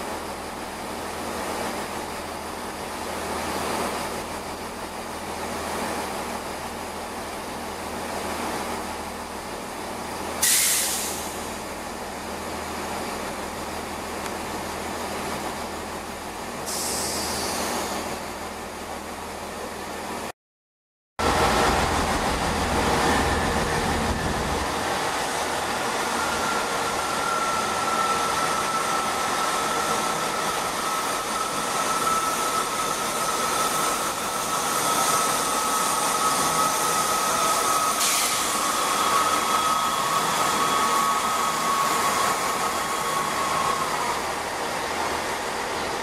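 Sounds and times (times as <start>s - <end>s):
diesel train engines running: 0.0s - 20.3s, 21.2s - 46.0s
train whine falling in pitch: 21.2s - 44.9s.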